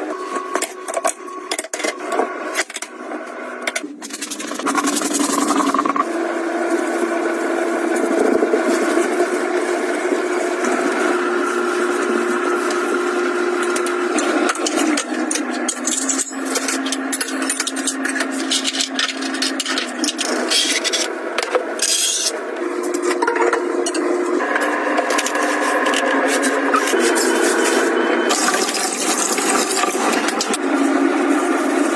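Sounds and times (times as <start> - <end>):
kitchen items clicking and knocking: 14.5 - 22.3.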